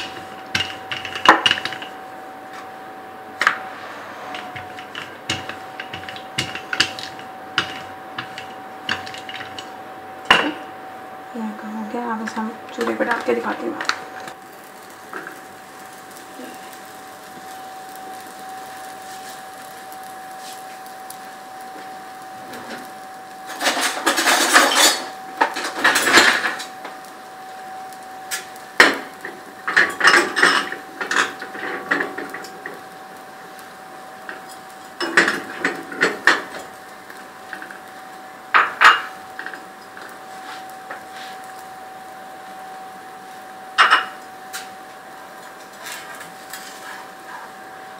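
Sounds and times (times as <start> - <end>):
utensils clinking on griddle: 0.0 - 2.0, 4.3 - 10.7, 21.8 - 27.1, 28.3 - 41.7, 43.7 - 44.7, 45.4 - 47.5.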